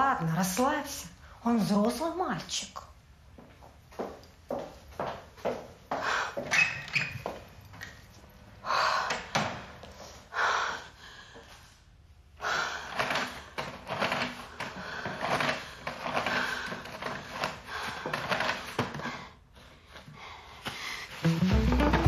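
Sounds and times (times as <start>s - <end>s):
paper towels rustling and crinkling: 21.1s - 22.0s.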